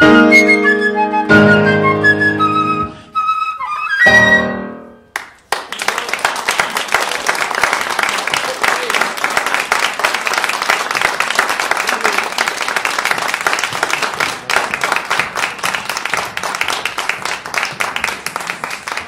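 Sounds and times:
audience applauding: 0:05.1 - 0:19.0.

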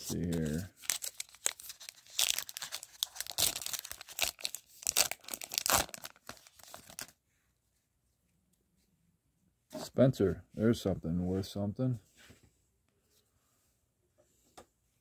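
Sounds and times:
card pack wrapper tearing and crinkling: 0:00.0 - 0:07.1.

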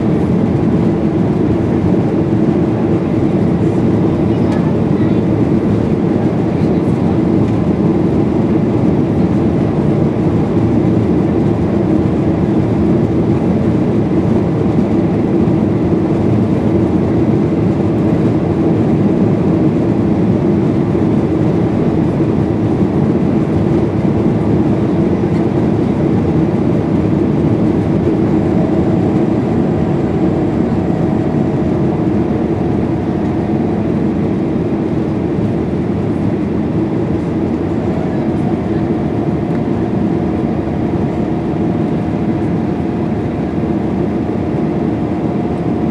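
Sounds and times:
airplane cabin engine rumble: 0:00.0 - 0:45.9.

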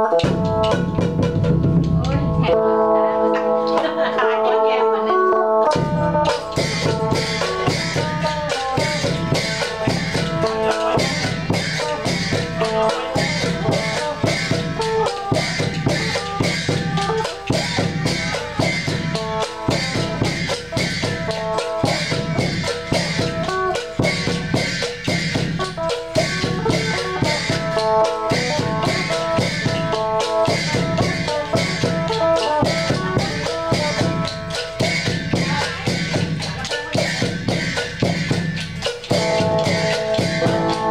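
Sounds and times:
large barrel drum beat: 0:00.0 - 0:04.9, 0:05.7 - 0:40.9
wooden clappers clacking: 0:06.1 - 0:40.9
plucked lute melody: 0:40.3 - 0:40.9.

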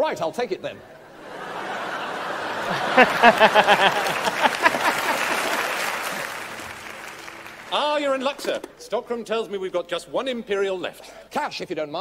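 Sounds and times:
studio audience laughing and applauding: 0:01.0 - 0:07.8
man laughing heartily: 0:02.3 - 0:05.6.

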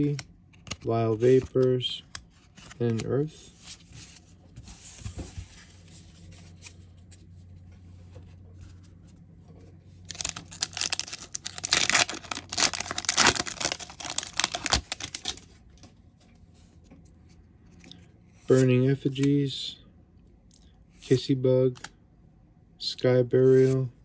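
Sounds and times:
foil pack crinkling: 0:10.1 - 0:15.5.

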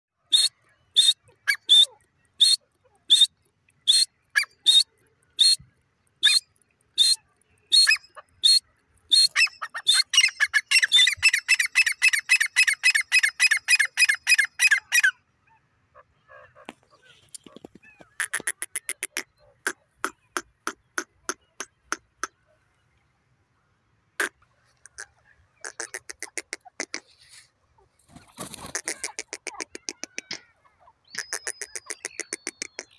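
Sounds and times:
francolin calling: 0:00.2 - 0:05.6, 0:06.2 - 0:15.1, 0:28.8 - 0:32.9.

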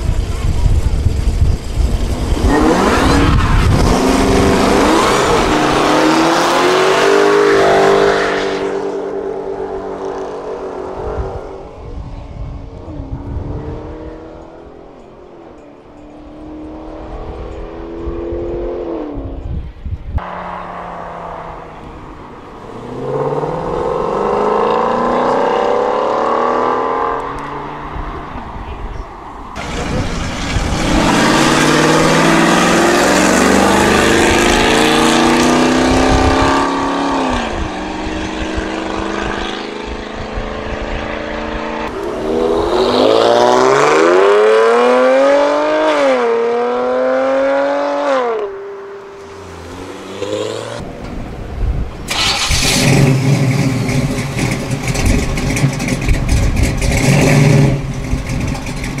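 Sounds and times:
muscle cars accelerating hard: 0:00.0 - 0:11.8, 0:20.2 - 0:59.0
car pulling away with gear change: 0:29.5 - 0:51.4, 0:52.0 - 0:59.0.

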